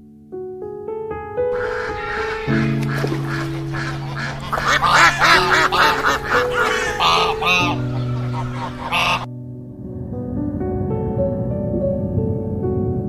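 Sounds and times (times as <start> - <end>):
soft piano music: 0.0 - 13.0
ducks calling: 1.5 - 9.3.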